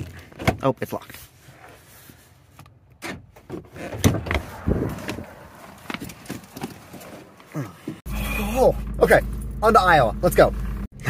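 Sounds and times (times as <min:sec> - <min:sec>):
car door opening: 0:03.0 - 0:08.0.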